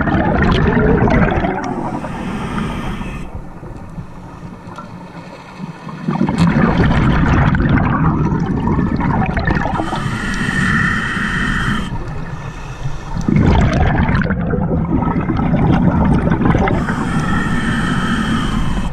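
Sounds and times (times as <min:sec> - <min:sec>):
exhaled bubbles rushing: 0:00.0 - 0:02.1, 0:05.9 - 0:10.0, 0:13.2 - 0:17.0
diver breathing through regulator: 0:01.6 - 0:03.6, 0:09.6 - 0:13.4, 0:16.5 - 0:18.9.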